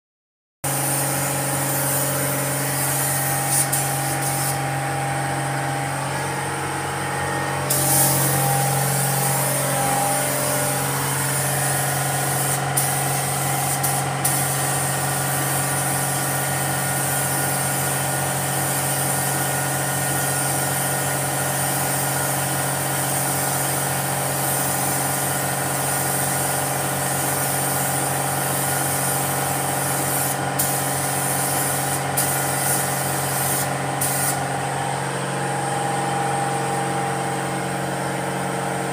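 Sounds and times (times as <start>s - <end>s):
paint spray gun hissing: 0.6s - 5.0s, 7.5s - 34.6s
machine hum: 0.7s - 14.2s.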